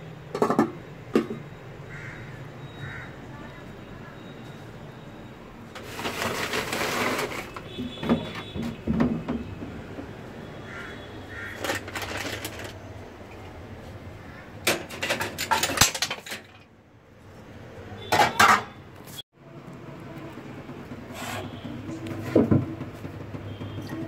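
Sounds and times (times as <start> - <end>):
pots and utensils clattering: 0.4 - 1.4, 5.8 - 9.5, 11.4 - 12.8, 14.6 - 16.7, 18.1 - 18.7.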